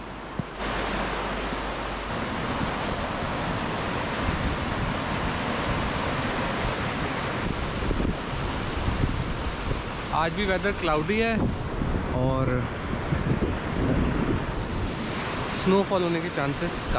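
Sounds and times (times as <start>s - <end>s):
river rushing over boulders: 0.0s - 11.8s.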